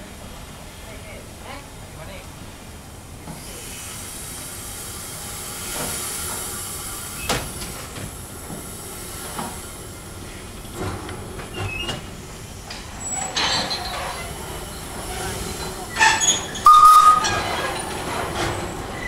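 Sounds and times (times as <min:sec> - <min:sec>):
steam locomotive hissing: 0:00.1 - 0:19.0
gush of steam: 0:02.4 - 0:19.0
wheel squeals: 0:11.5 - 0:12.1, 0:12.9 - 0:19.0.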